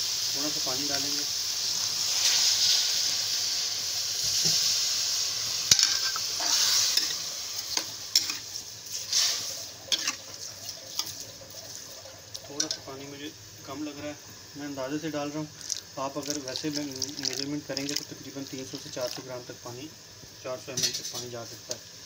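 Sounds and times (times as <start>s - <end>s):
water hissing in hot pan: 0.0s - 22.0s
ladle scraping a wok: 5.7s - 12.8s.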